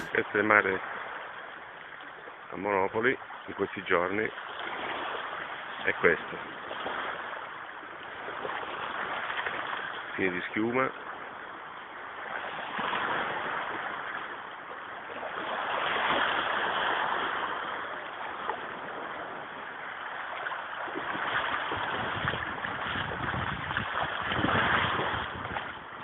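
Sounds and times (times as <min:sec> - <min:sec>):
waves lapping rocky shore: 0:00.0 - 0:26.0
wind rumbling on microphone: 0:15.1 - 0:26.0.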